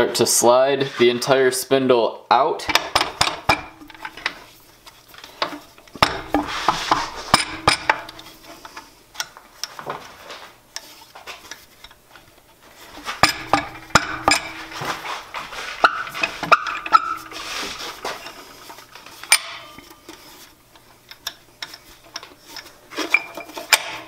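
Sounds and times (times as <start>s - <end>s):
steel spindle sliding out: 6.0s - 8.8s
metal clinks and taps: 13.2s - 14.7s.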